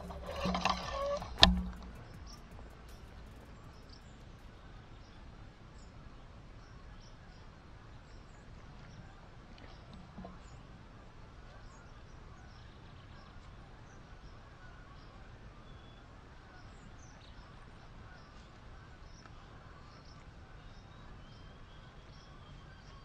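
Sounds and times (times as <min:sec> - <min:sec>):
low steady rumble: 0:00.0 - 0:05.5.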